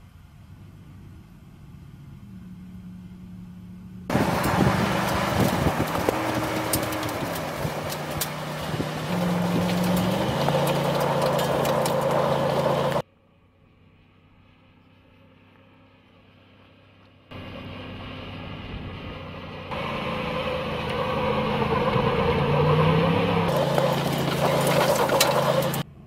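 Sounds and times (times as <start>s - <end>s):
truck engine revving: 4.0s - 13.0s, 17.3s - 25.9s
tyres on dirt: 4.1s - 13.0s, 19.6s - 26.0s.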